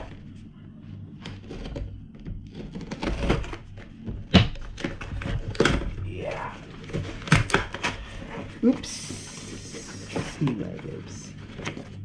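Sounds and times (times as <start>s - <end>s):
scissors cutting cardboard: 1.2s - 3.9s.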